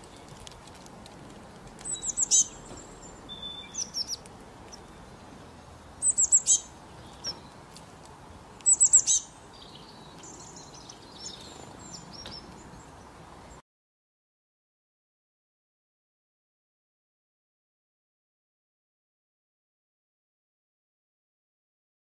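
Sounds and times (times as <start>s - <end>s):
songbird calling: 1.8s - 7.6s, 8.6s - 13.6s
soft bird chirps: 1.8s - 7.7s, 8.3s - 13.6s.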